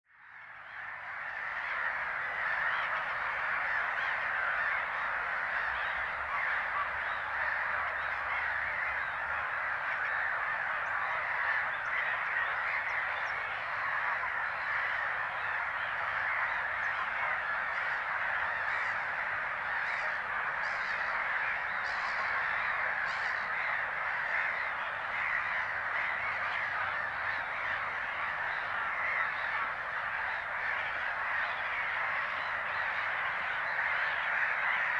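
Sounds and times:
gull colony calling: 0.7 - 34.9.

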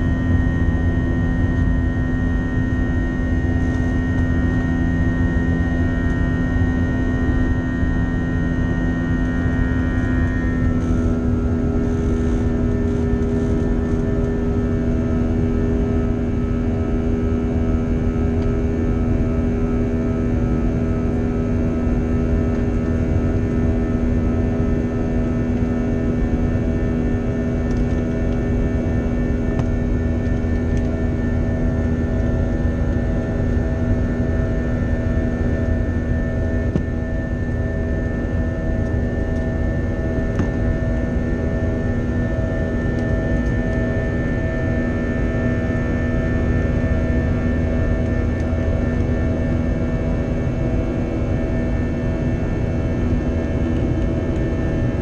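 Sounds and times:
hum of held tones: 0.0 - 55.0
jet engine roar in cabin: 0.0 - 55.0.

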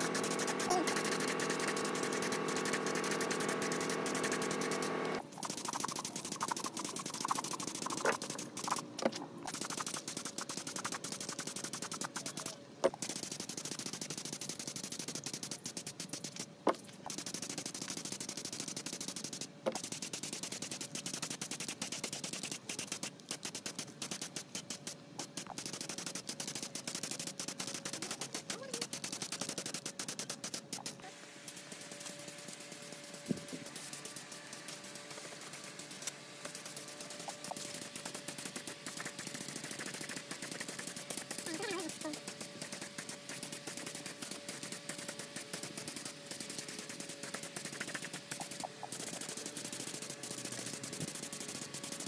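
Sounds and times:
spray gun hissing: 25.6 - 52.0.

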